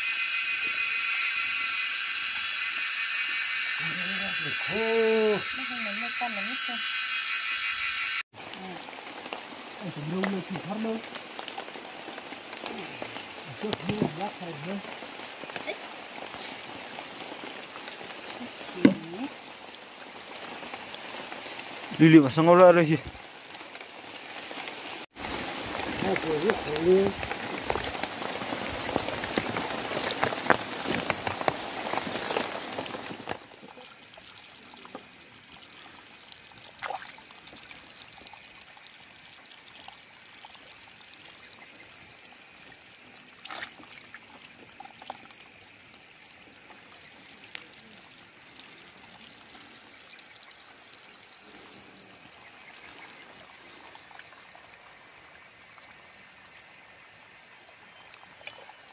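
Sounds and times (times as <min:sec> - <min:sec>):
fish splashing in buckets: 0:23.1 - 0:58.9.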